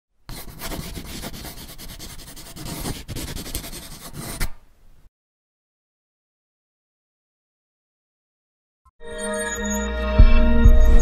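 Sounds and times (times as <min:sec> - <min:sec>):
pencil scratching on paper: 0:00.3 - 0:04.6.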